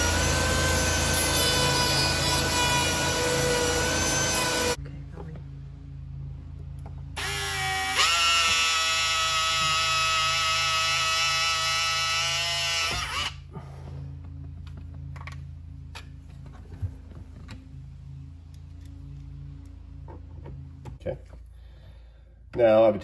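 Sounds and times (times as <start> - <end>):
cordless drill whining: 7.2 - 13.5.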